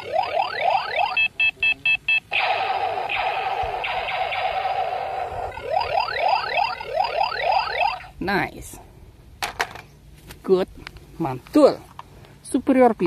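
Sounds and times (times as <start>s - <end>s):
noisy buzzing with steady tone: 0.0s - 11.2s
short beeps: 0.2s - 2.4s
toy gun laser zaps: 2.3s - 8.1s.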